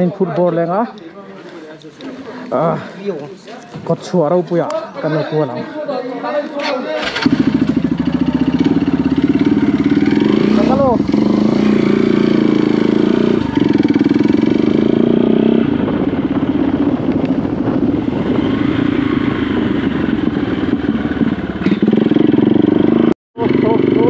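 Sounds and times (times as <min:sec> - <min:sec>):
vehicle engine running: 0:07.1 - 0:15.1.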